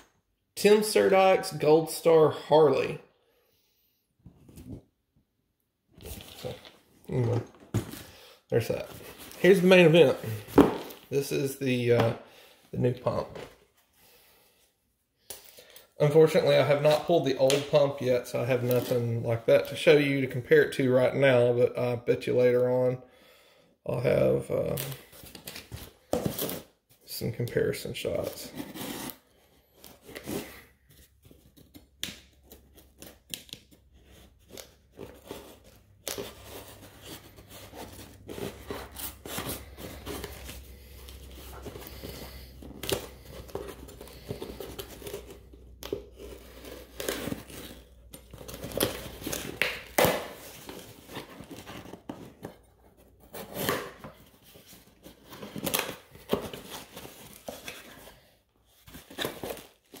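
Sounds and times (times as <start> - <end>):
cardboard scraping and rustling: 34.0 - 58.1.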